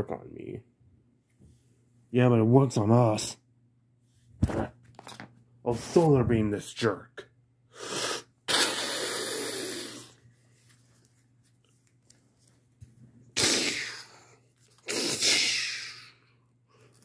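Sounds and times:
child making hissing blasts: 7.7 - 10.2, 13.4 - 16.2.

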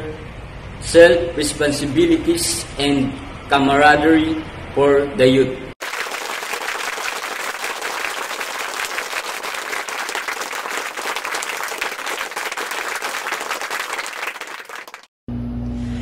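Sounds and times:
audience applause: 5.8 - 15.1.

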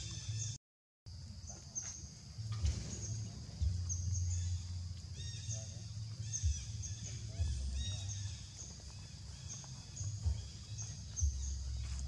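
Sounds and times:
low rumble: 2.4 - 12.0
baby monkey squeaking: 3.9 - 11.8.

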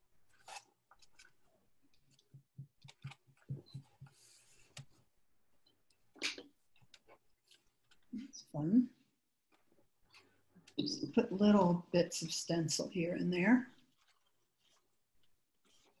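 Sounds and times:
sponge dabbing paint: 1.3 - 5.1, 13.3 - 16.0.

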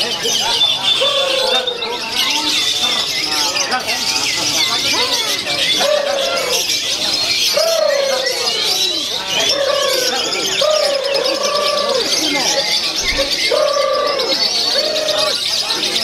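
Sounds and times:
drawn-out bird calls: 0.0 - 16.0
lovebirds chattering: 0.0 - 16.0.

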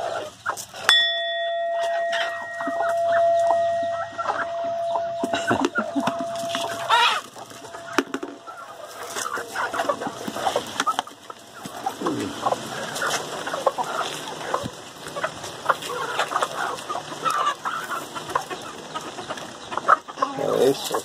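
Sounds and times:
chickens clucking: 0.0 - 21.0.

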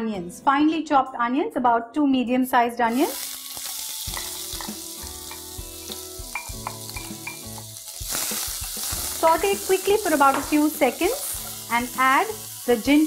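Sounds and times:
onions sizzling in hot oil: 2.9 - 13.0.

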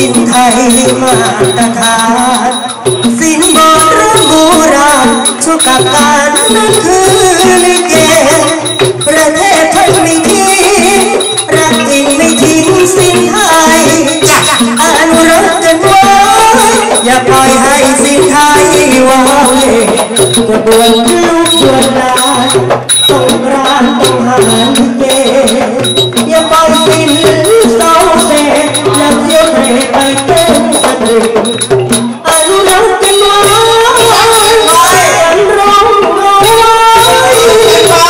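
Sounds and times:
man singing through a microphone: 0.0 - 38.0
steady drum beat: 0.0 - 38.0
people clapping along: 10.0 - 38.0.

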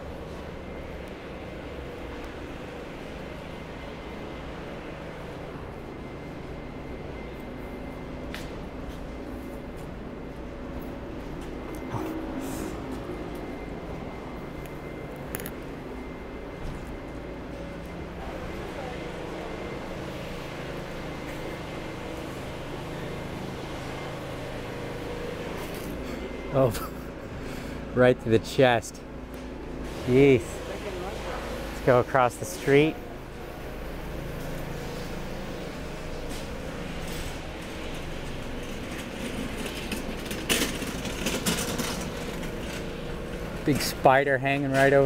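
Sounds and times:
distant traffic hum: 0.0 - 45.0
cart rattling past: 36.0 - 45.0.

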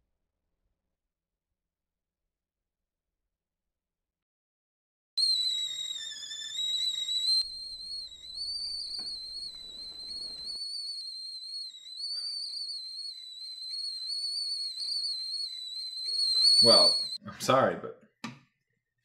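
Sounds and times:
kettle whistling: 5.2 - 17.2.

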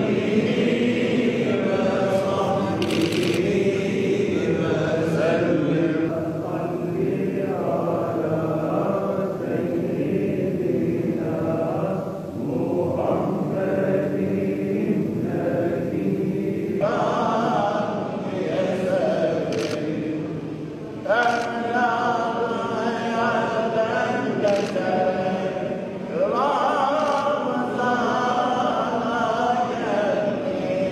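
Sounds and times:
voices chanting religious recitation: 0.0 - 30.9.

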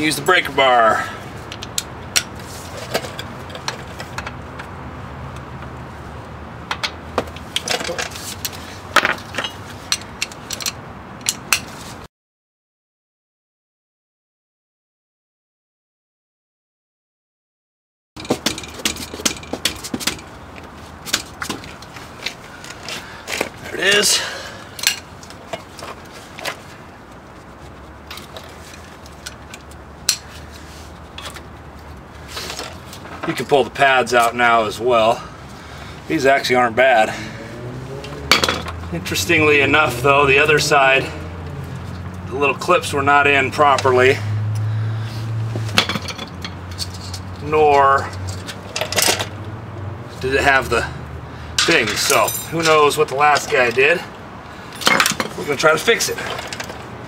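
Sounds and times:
metal tools clinking on bolt: 6.7 - 11.7, 24.8 - 26.6, 31.1 - 31.4, 38.3 - 38.8, 45.8 - 49.4, 51.6 - 53.9, 54.7 - 56.8.

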